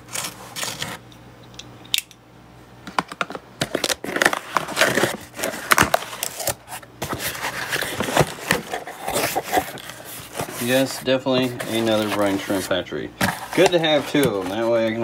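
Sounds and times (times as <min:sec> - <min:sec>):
cardboard box rustling and scraping: 0:04.0 - 0:15.0.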